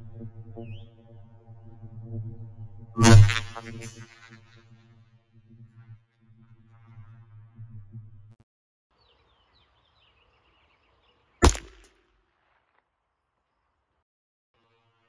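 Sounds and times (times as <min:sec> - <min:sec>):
low humming tone: 0:00.0 - 0:08.4
gunshot: 0:11.4 - 0:12.7.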